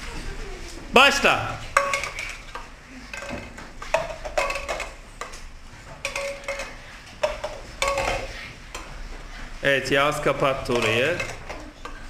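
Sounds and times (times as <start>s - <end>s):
plastic cups clacking on board: 1.6s - 5.4s, 6.0s - 8.9s, 10.6s - 12.0s.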